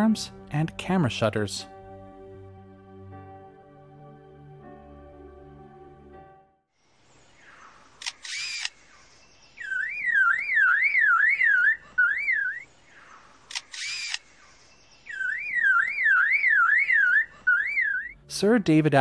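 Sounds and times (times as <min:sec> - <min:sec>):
lyrebird mimicking camera shutter: 0:08.0 - 0:08.9, 0:13.4 - 0:14.4
lyrebird mimicking car alarm: 0:09.6 - 0:12.7, 0:15.1 - 0:18.2.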